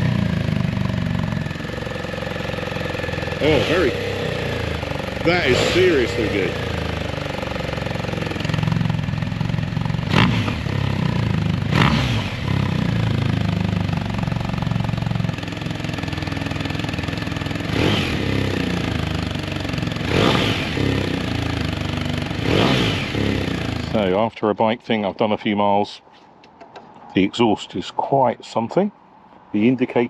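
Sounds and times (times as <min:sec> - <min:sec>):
motorcycle engine idling: 0:00.0 - 0:24.2
engine revving sharply: 0:02.5 - 0:07.2, 0:10.0 - 0:13.3, 0:17.6 - 0:19.1, 0:20.0 - 0:24.1.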